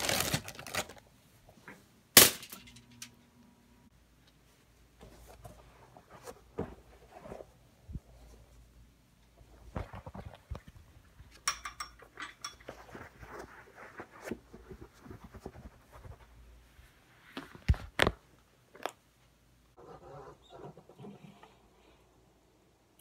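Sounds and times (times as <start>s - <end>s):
objects rustling and clattering: 9.4s - 16.3s.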